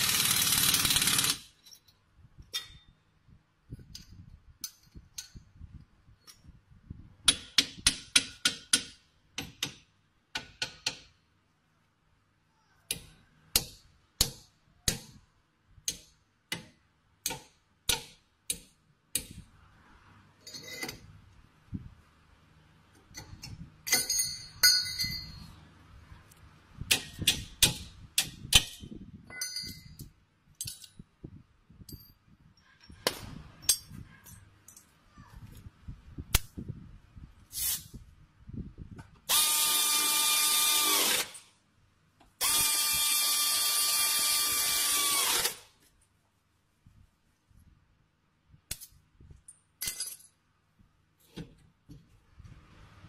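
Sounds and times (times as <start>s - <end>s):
air wrench running: 0.0s - 1.5s, 39.3s - 41.4s, 42.4s - 45.6s
metal tools clinking: 20.4s - 21.0s, 23.8s - 25.5s, 29.3s - 30.0s, 49.4s - 50.4s.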